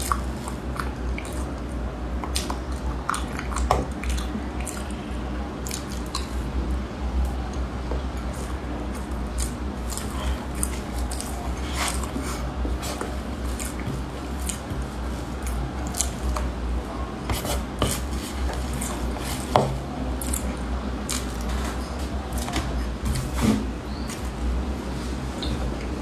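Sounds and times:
soft chewing: 0.0s - 26.0s
steady low hum: 0.0s - 26.0s.

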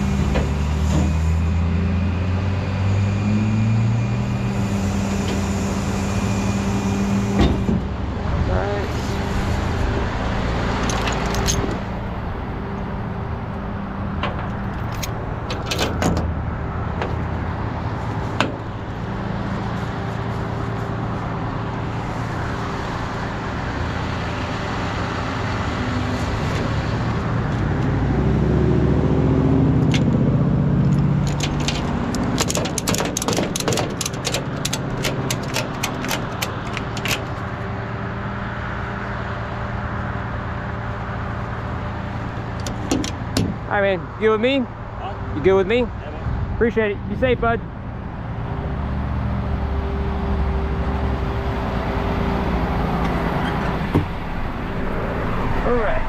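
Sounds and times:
metal chains clicking and rattling: 10.8s - 11.9s, 30.9s - 37.3s.

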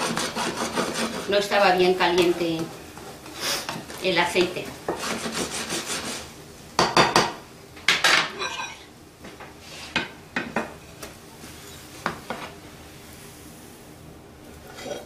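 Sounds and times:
spatula scraping frying pan: 0.0s - 2.6s, 3.2s - 6.3s, 8.4s - 8.9s, 14.5s - 15.0s.

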